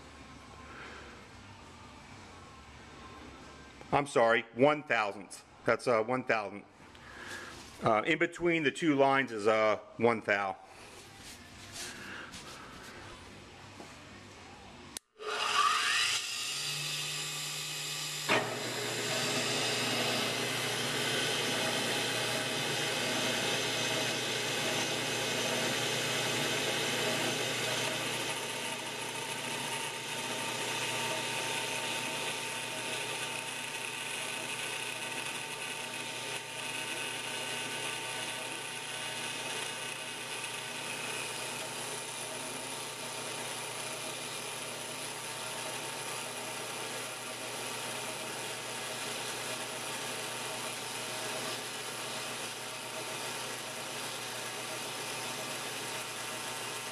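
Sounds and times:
grinder motor whine: 0:15.2 - 0:56.9
grinding wheel on steel: 0:18.3 - 0:56.9.

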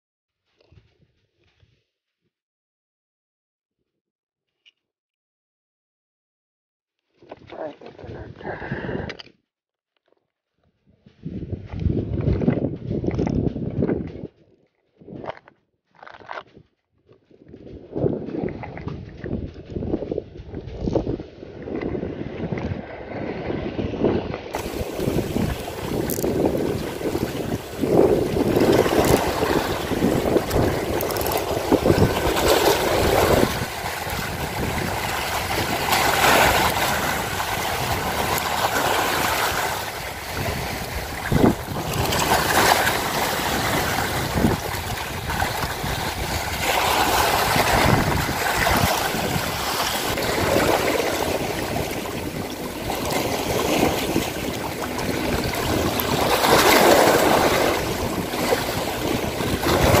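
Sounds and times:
wind rumble on microphone: 0:07.4 - 0:09.3, 0:10.6 - 0:15.5, 0:16.2 - 1:00.0
sea waves splashing against rocks: 0:24.6 - 1:00.0.

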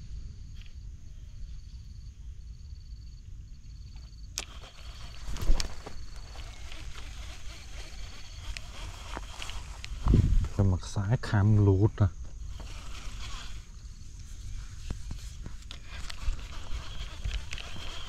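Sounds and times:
insect trilling: 0:00.5 - 0:18.0
rustling: 0:03.8 - 0:10.8, 0:12.3 - 0:18.0.

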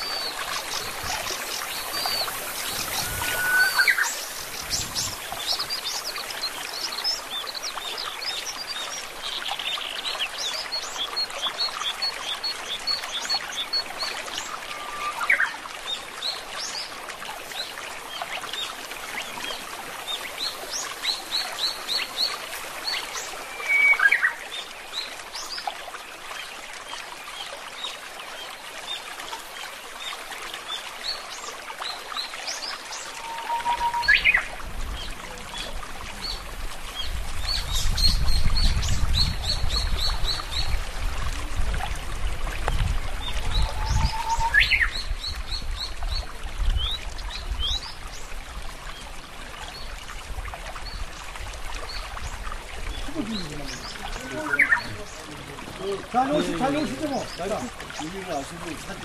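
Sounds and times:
low whistled bird calls: 0:00.0 - 0:06.2, 0:23.1 - 0:24.4, 0:33.0 - 0:34.5, 0:43.2 - 0:45.1
running water: 0:00.0 - 0:59.0.

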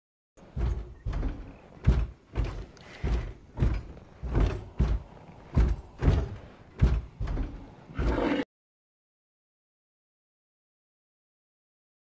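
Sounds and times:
deep thumping sounds: 0:00.4 - 0:08.0.

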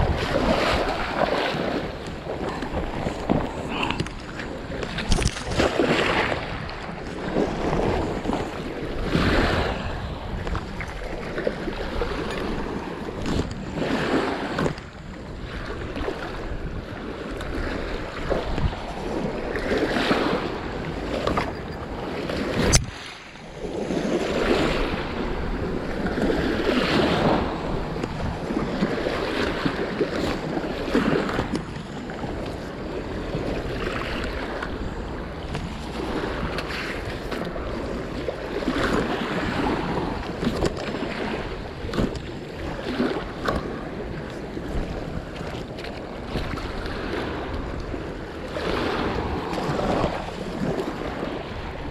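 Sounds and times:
waves splashing on rocks: 0:00.0 - 0:09.8
wind buffeting microphone: 0:00.0 - 0:51.9.

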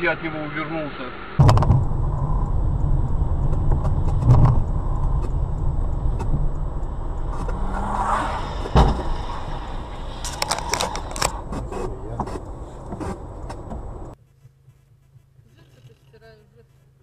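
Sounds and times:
car road and engine rumble: 0:00.0 - 0:14.2
loud thump: 0:01.4 - 0:14.0
scattered clicks: 0:01.4 - 0:14.2
hiss: 0:05.6 - 0:12.8.

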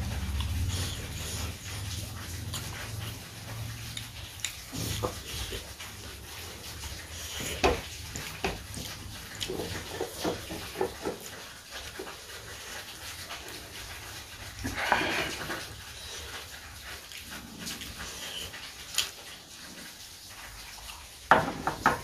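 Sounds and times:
chewing with wet mouth clicks: 0:00.0 - 0:21.3.

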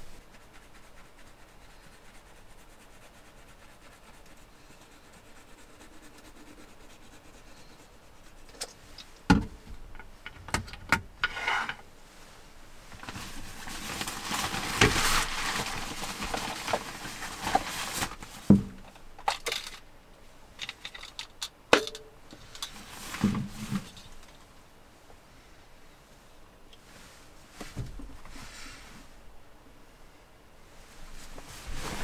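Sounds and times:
plastic bag rustling: 0:12.9 - 0:18.9, 0:30.9 - 0:32.0.

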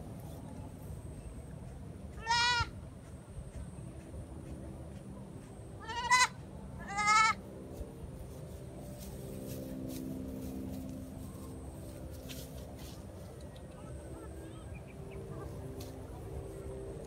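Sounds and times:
faint low hum: 0:00.0 - 0:17.0
goat kid bleating: 0:02.2 - 0:02.7, 0:05.8 - 0:07.4.

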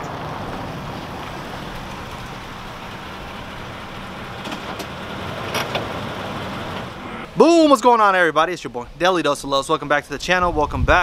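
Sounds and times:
car engine running at low speed: 0:00.0 - 0:07.4.

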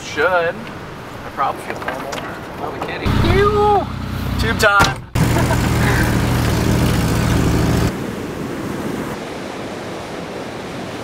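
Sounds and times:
heavy surf breaking: 0:00.1 - 0:11.0
vehicle engine droning: 0:03.0 - 0:07.9.

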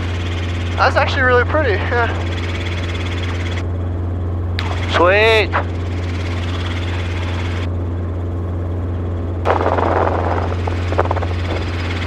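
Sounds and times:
helicopter cabin drone: 0:00.0 - 0:12.0.

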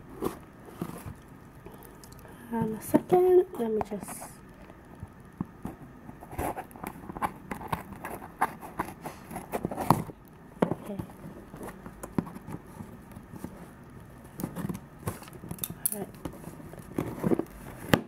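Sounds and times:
taps and knocks on parcel: 0:17.2 - 0:18.0.

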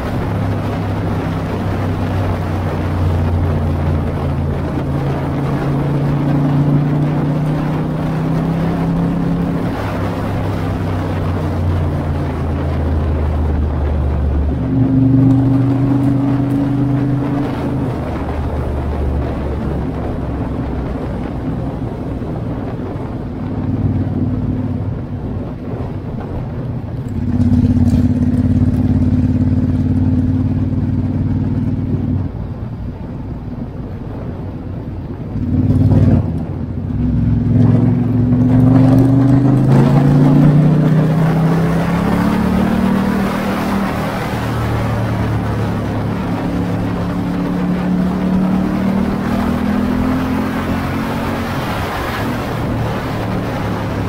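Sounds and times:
motorcycle engine running: 0:00.0 - 0:43.2.

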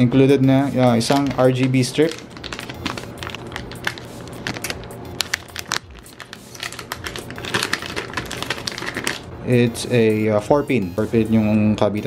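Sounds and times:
plastic bag crinkling: 0:01.0 - 0:09.3.

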